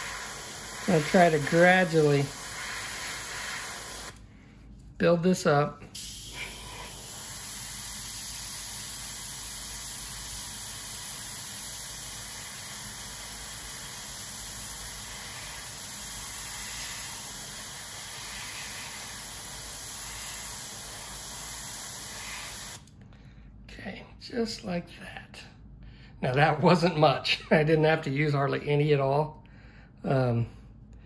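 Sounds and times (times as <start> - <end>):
airbrush spraying hiss: 0.0 - 4.2, 6.0 - 22.8.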